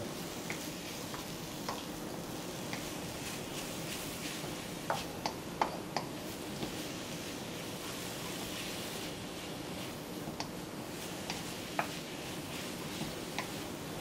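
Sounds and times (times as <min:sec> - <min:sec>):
noodles sizzling in a wok: 0:00.0 - 0:05.2, 0:06.1 - 0:14.0.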